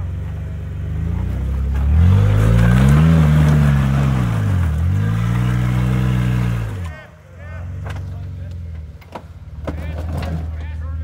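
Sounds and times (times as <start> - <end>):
engine revving under load: 0.0 - 8.6.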